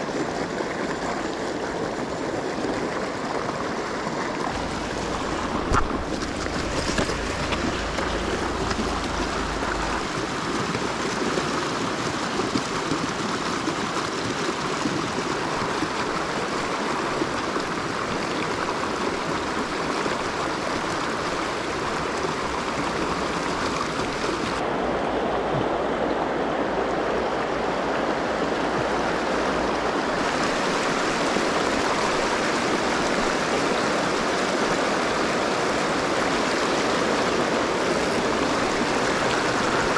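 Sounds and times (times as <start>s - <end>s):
river running over rocks: 0.0s - 39.9s.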